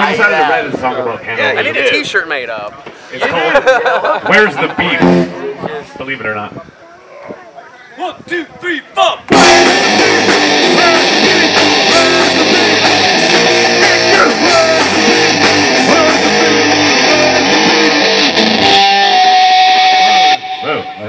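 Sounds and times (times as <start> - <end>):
bass guitar: 4.8 - 6.0, 9.3 - 21.0
drums and cymbals: 9.3 - 17.9
electric guitars: 9.3 - 21.0.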